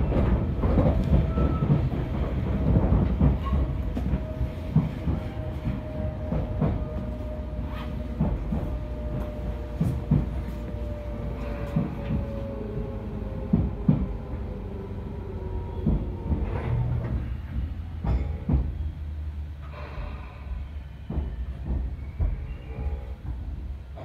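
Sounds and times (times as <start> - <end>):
wheels clacking over rail joints: 0.0 - 18.9
train running rumble: 0.0 - 24.0.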